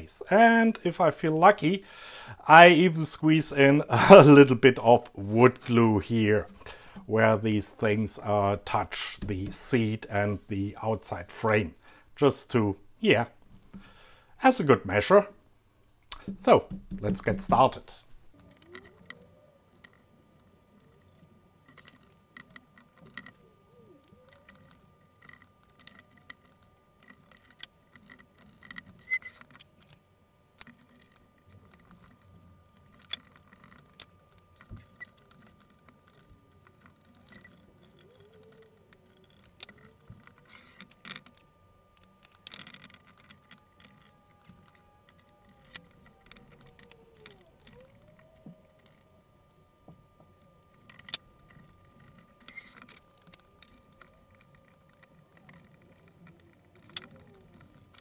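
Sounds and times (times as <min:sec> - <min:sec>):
faint steady tone: 0:00.0 - 0:58.0
faint squeaks: 0:17.8 - 0:29.9, 0:30.6 - 0:58.0.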